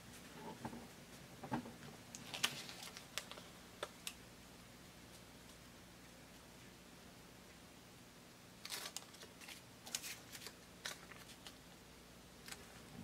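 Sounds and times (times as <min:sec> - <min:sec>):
paper backing crinkling: 0:02.1 - 0:04.2, 0:08.6 - 0:11.6.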